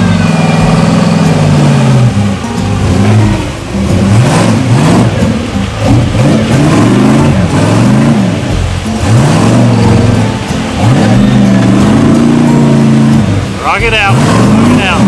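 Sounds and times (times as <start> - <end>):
engine revving: 0.0 - 15.0.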